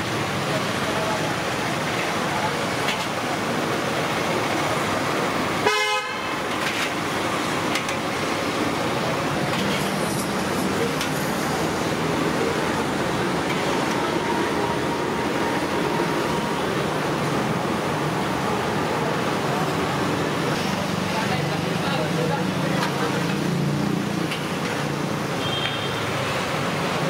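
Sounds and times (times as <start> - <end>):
street traffic: 0.0 - 27.0
vehicle horn toot: 5.6 - 6.3, 25.4 - 26.1
oil sizzling deep-frying: 22.7 - 25.9.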